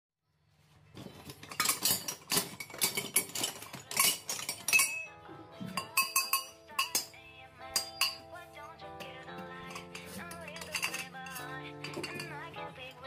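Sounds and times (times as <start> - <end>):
steel offcuts clinking together: 1.6 - 5.1, 9.7 - 12.4.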